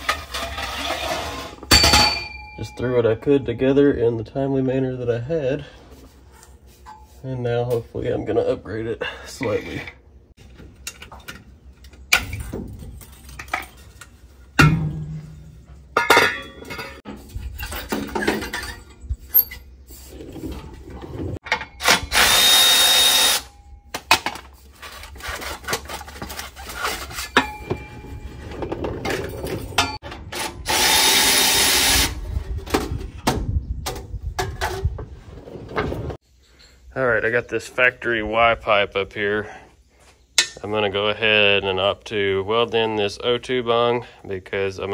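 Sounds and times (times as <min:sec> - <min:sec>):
metal parts and tools clanking: 0:00.0 - 0:03.5, 0:09.7 - 0:22.4, 0:23.2 - 0:30.8, 0:40.4 - 0:40.8
power tool bursts: 0:21.8 - 0:23.5, 0:30.4 - 0:32.2.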